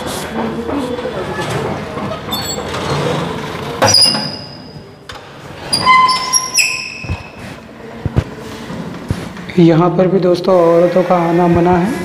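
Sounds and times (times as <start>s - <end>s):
rustling noise: 7.0s - 9.6s.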